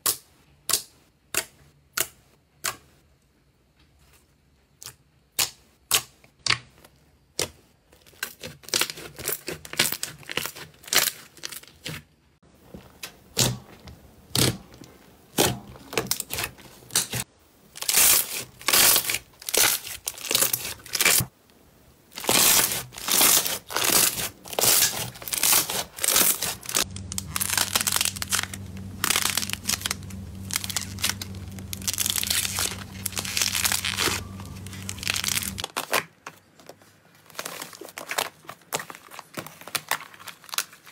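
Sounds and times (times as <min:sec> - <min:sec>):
slime squelching: 0:22.1 - 0:35.6.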